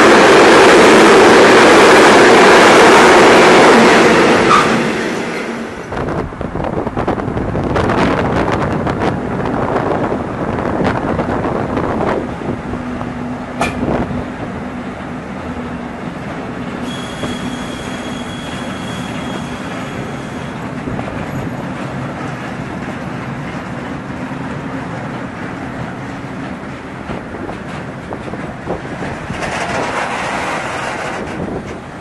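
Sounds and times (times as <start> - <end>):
electric locomotives passing: 0.0 - 32.0
high wheel squeal: 4.5 - 4.8, 16.8 - 20.6
train wheel clatter: 13.5 - 14.2, 14.8 - 32.0
sharp click: 13.6 - 13.9.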